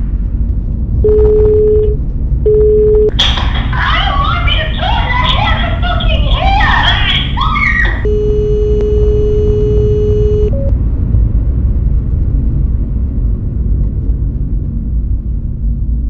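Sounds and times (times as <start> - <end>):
car engine and road noise: 0.0 - 16.0
steady high tone: 3.8 - 10.7.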